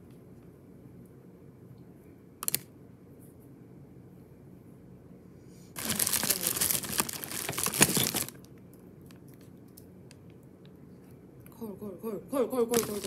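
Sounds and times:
plastic packaging crinkling: 5.8s - 8.5s, 12.7s - 13.0s.

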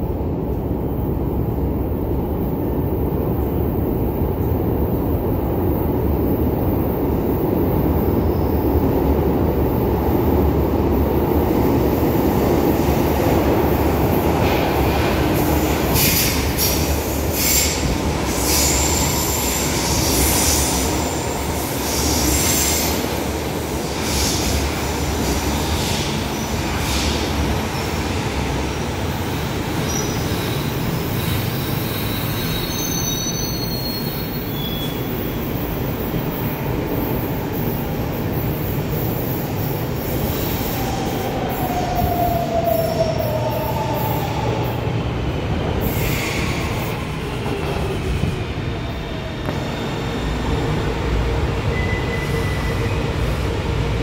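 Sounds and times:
train rumbling: 0.0s - 54.0s
train wheels squealing: 15.5s - 44.8s, 45.8s - 50.8s, 51.6s - 53.5s.

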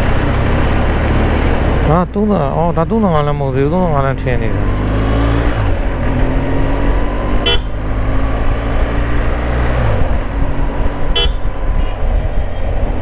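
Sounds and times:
motorcycle horn beeps: 7.4s - 7.8s, 11.1s - 12.0s.

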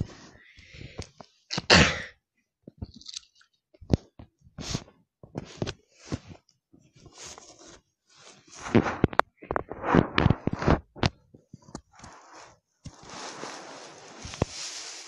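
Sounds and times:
plastic toys rustling: 2.8s - 3.4s, 12.9s - 15.0s
plastic toys clicking and knocking: 2.8s - 3.5s.

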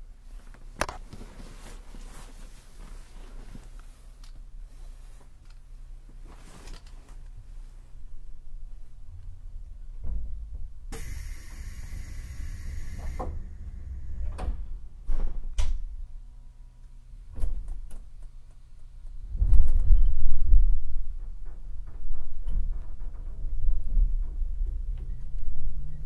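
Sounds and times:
train motor rumble: 8.9s - 15.5s
air hiss: 10.9s - 15.0s
train doors closing thuds: 11.0s - 15.9s.

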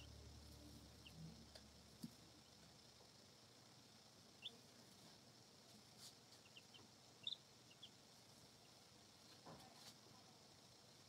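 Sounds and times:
baby chicks chirping: 0.0s - 2.9s, 3.8s - 10.0s.

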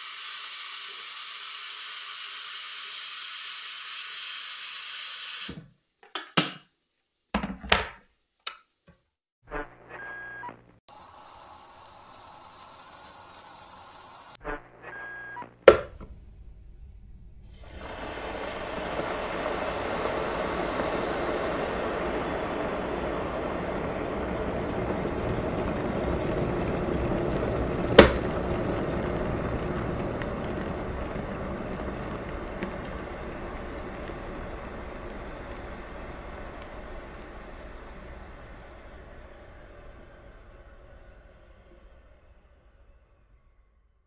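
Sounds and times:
water boiling in a kettle: 0.0s - 5.5s, 17.5s - 39.5s.

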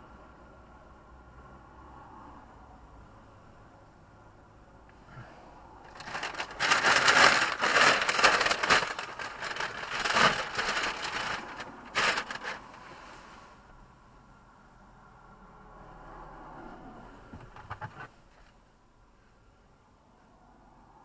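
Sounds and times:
crackly clicks: 5.9s - 12.8s
rustling and crinkling near microphone: 5.9s - 13.5s, 17.3s - 18.6s.

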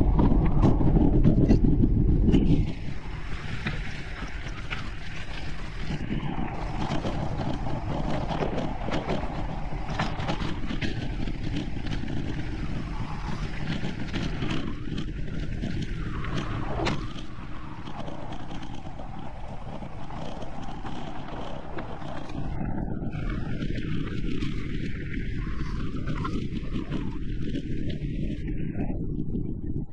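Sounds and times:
wind and tyre rumble: 0.0s - 29.9s
bike clicks and rattles: 0.1s - 28.5s.

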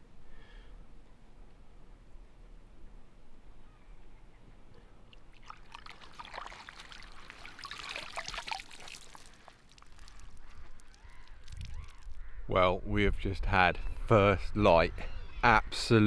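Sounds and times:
fish splashing in water: 5.1s - 12.2s.

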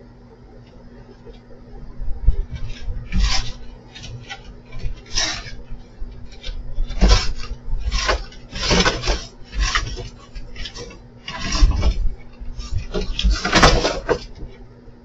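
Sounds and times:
dull thumps: 1.3s - 14.6s.

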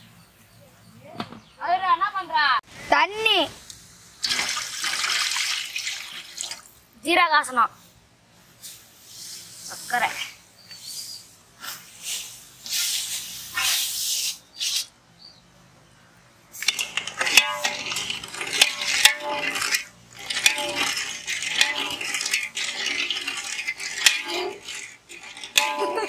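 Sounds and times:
ladle scraping and clinking pot: 16.6s - 26.0s.

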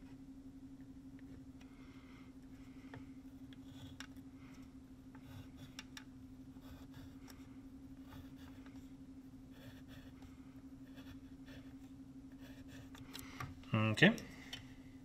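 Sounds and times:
steady hum: 0.0s - 15.0s
pencil scratching on paper: 3.6s - 4.0s, 5.2s - 5.9s, 6.5s - 7.4s, 8.0s - 8.9s, 9.5s - 13.0s.

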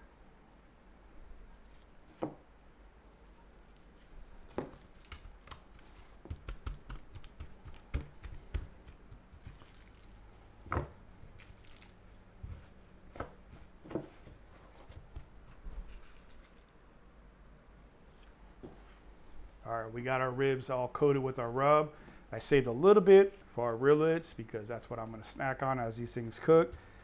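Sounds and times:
hands patting raw meat: 4.5s - 10.1s, 10.7s - 16.0s.

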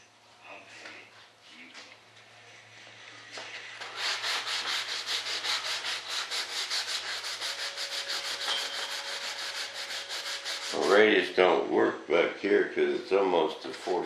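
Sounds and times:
sandpaper rasping back and forth: 3.8s - 11.3s.

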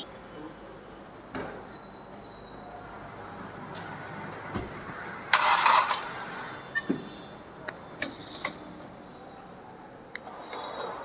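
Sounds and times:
car engine cranking: 5.3s - 6.2s.

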